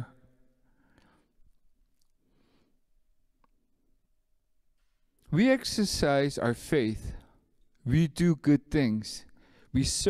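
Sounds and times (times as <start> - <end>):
soft breath: 0.6 - 1.4, 2.2 - 3.0, 9.4 - 9.8
man speaking into a microphone: 5.2 - 10.0.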